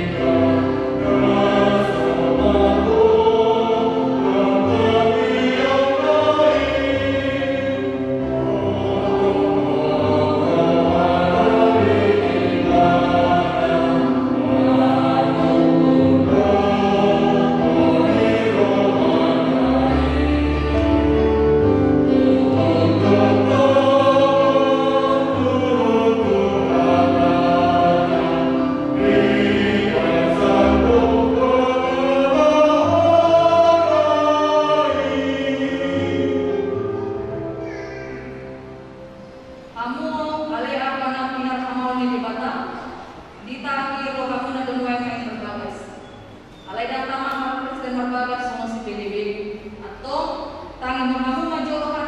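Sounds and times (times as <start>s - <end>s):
group singing a hymn: 0.0s - 37.1s.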